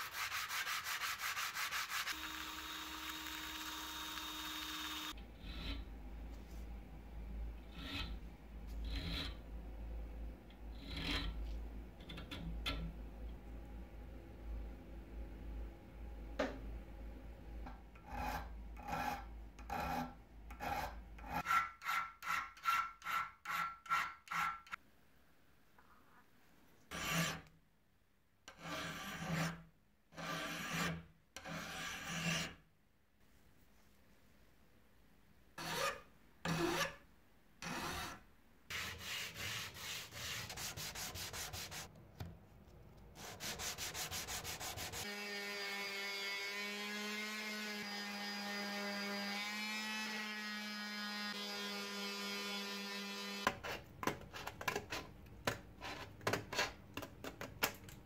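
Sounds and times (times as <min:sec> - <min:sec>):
hand file scraping metal: 0:00.0 - 0:02.4, 0:18.0 - 0:24.8, 0:26.9 - 0:27.5, 0:35.6 - 0:37.0, 0:37.6 - 0:41.9, 0:43.2 - 0:45.1.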